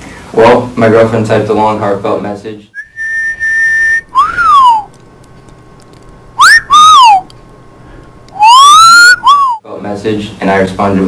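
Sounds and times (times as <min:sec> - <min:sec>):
loud swooping whistling: 0:02.8 - 0:04.9, 0:06.4 - 0:07.3, 0:08.4 - 0:09.6.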